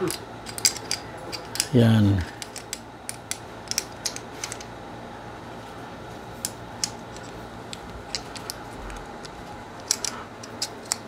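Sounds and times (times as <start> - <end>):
pistol parts clicking and tapping: 0.0 - 1.7, 2.4 - 4.7, 6.4 - 11.0
steady low hum: 0.0 - 11.0.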